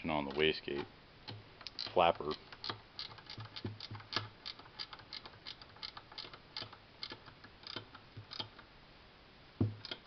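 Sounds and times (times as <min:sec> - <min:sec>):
ratchet wrench clicking: 0:01.6 - 0:08.5.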